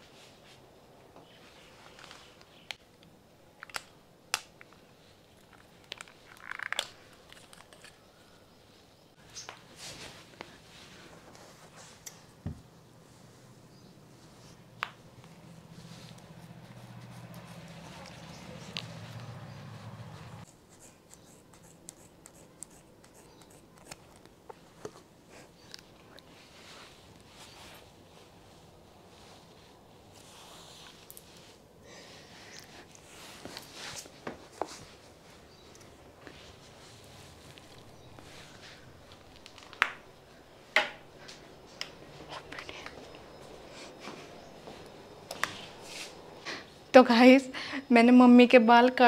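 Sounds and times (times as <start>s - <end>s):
rustle of hair and handling: 9.2s - 21.6s, 23.8s - 40.6s, 41.2s - 46.3s
scissors snipping hair: 16.1s - 19.4s.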